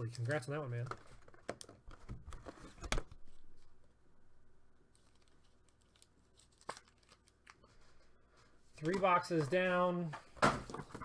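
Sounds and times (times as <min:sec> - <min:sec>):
packaging crinkling: 0:04.9 - 0:07.8.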